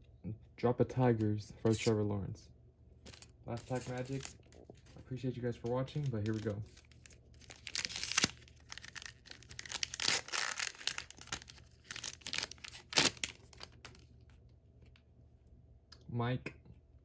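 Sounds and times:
wrapper tearing and crinkling: 3.1 - 5.0, 5.9 - 14.1.

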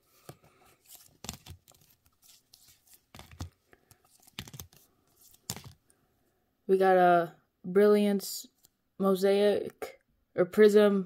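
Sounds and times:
trading cards clicking and rustling: 0.1 - 5.8.

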